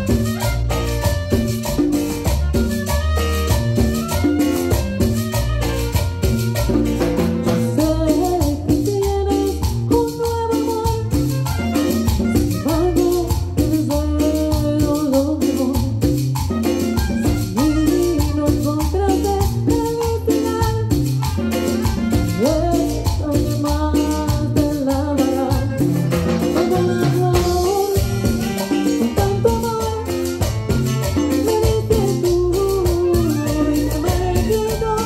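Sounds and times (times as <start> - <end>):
reed instrument melody: 0.0 - 8.0, 11.1 - 13.2, 16.4 - 18.5, 21.2 - 22.8, 25.4 - 31.4
latin dance band playing: 0.0 - 35.0
metal shaker rhythm: 0.0 - 35.0.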